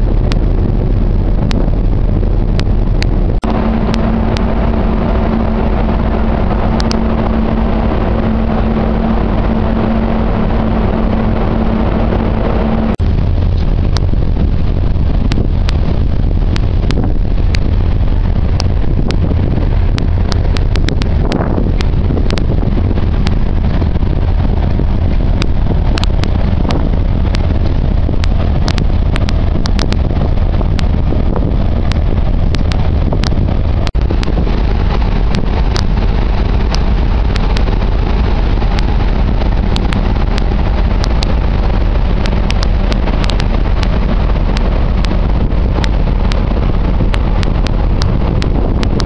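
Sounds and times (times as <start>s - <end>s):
rush of ship's wake: 0.0s - 49.0s
ship engines droning: 0.0s - 49.0s
wind buffeting microphone: 0.0s - 49.0s
faint clicks: 6.8s - 7.0s, 25.4s - 27.4s, 28.2s - 30.0s, 31.8s - 36.0s, 42.2s - 45.2s.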